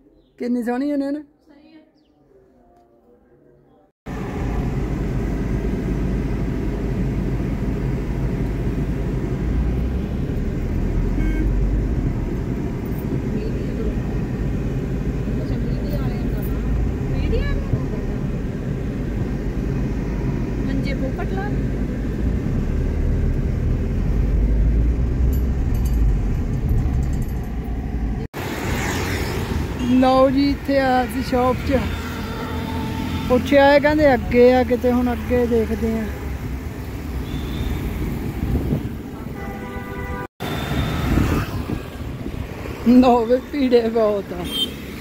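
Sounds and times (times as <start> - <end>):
car engine rumble from inside: 4.1 - 28.4
road noise: 4.1 - 45.0.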